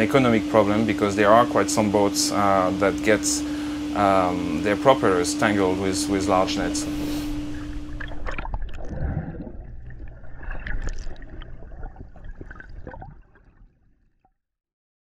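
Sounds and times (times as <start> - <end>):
low steady hum: 0.0 - 13.6
underwater bubbles and churning: 5.8 - 14.4.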